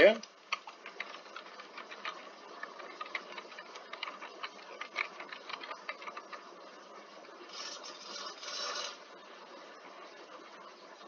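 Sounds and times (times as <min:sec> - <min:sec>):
computer keyboard keys clicking: 0:00.5 - 0:06.4
rushing hiss-like noise: 0:07.4 - 0:09.2.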